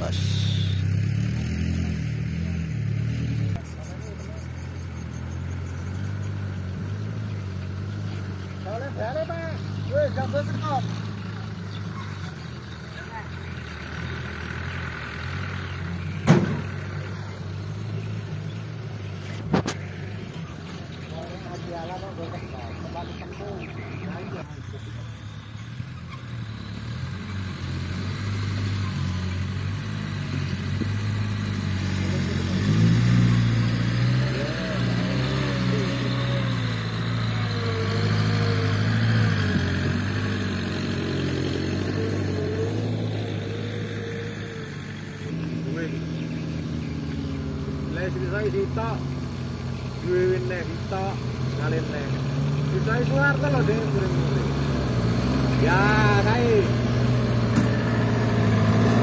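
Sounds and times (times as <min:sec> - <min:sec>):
truck engine running: 0:00.0 - 0:59.0
loud sharp bang: 0:16.2 - 0:16.6.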